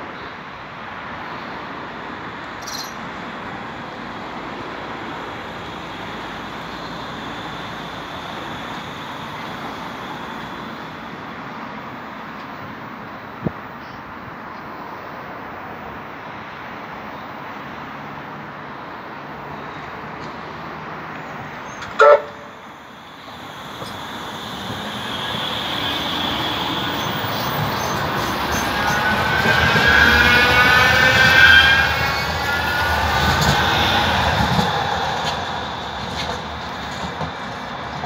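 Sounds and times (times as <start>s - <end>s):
tram wheels rumbling on rails: 0.8s - 38.0s
tram motors whining: 21.7s - 38.0s
tram horn toot: 21.8s - 22.8s, 23.8s - 36.4s.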